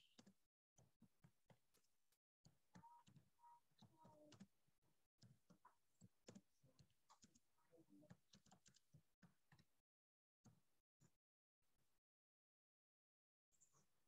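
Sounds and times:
keyboard typing: 5.2s - 9.7s.

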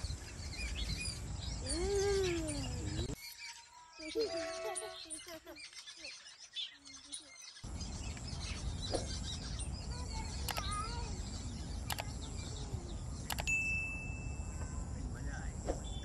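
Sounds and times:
birds chirping: 0.0s - 16.0s
sharp clicks: 10.2s - 11.0s, 11.8s - 12.4s, 13.2s - 13.6s
high bell-like ding: 13.5s - 14.8s.

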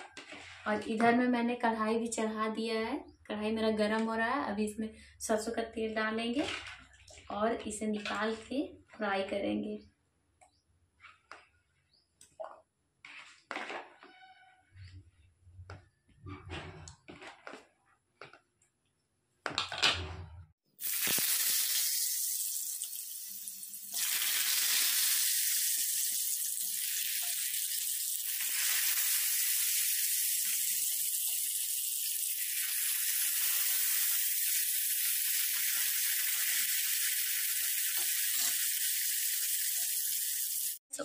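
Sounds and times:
vegetable pieces sizzling in oil: 20.8s - 40.8s.

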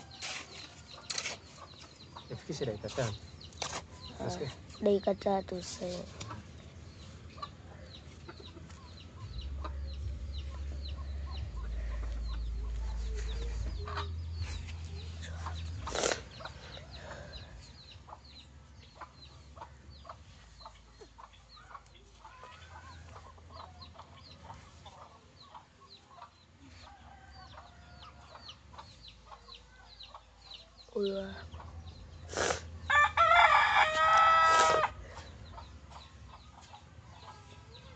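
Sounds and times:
chickens clucking: 0.0s - 37.9s
low rumble: 9.2s - 15.9s.

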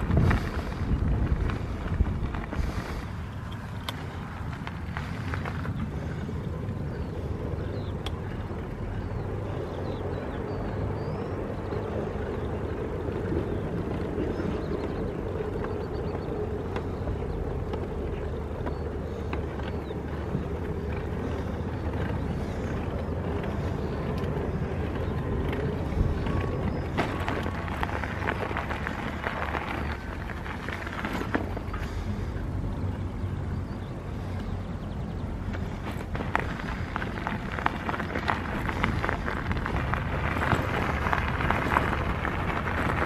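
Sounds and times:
bike tyres hissing on gravel: 0.0s - 6.5s, 20.6s - 32.8s, 34.2s - 43.0s
bike tyres rolling on wooden boardwalk: 0.0s - 43.0s.

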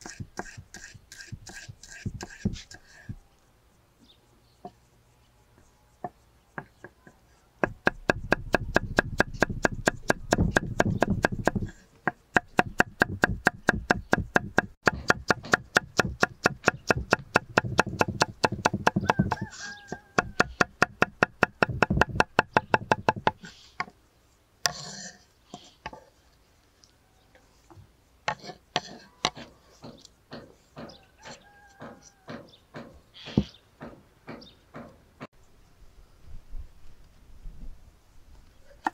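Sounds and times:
knife chopping on wooden board: 0.0s - 3.2s, 7.6s - 19.5s, 20.2s - 23.4s.

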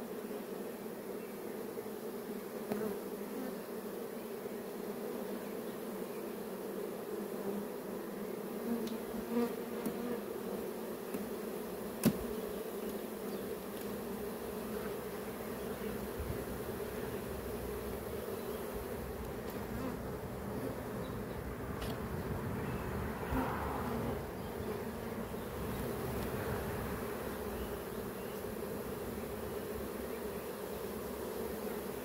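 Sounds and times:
bees buzzing: 0.0s - 32.0s.

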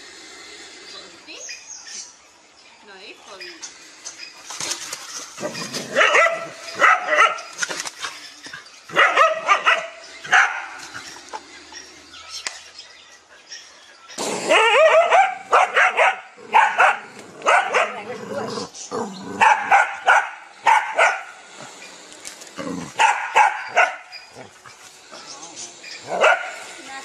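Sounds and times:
dog barking: 6.0s - 7.5s, 8.9s - 10.7s, 14.5s - 18.1s, 19.4s - 21.3s, 23.0s - 24.1s, 26.1s - 26.6s.

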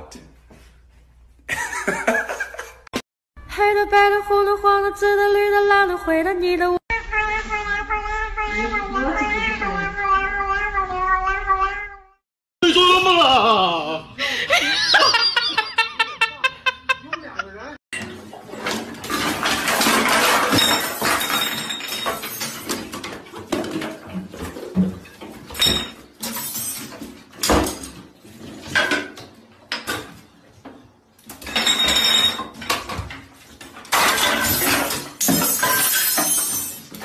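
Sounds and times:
objects clattering on floor: 18.0s - 37.0s.

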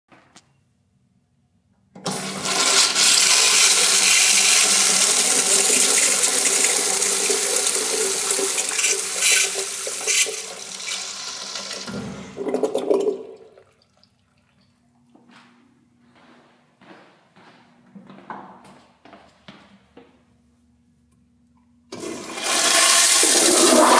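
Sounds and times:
urinal flushing: 2.0s - 14.8s, 21.9s - 23.9s.

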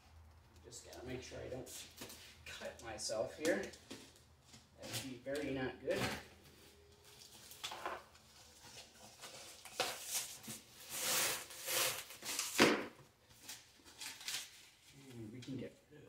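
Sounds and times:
knife slitting packing tape: 9.2s - 12.8s.

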